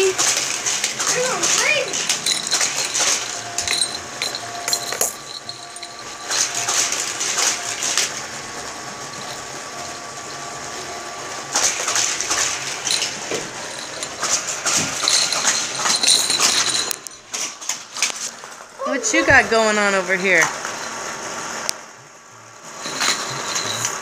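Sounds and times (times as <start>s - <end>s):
small jingle bells jingling: 1.2s - 7.7s, 12.7s - 17.8s, 22.8s - 24.0s.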